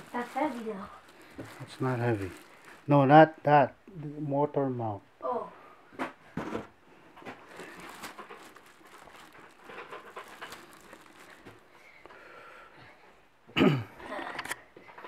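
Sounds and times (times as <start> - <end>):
plastic bag crinkling: 0.0 - 3.1, 7.3 - 12.0.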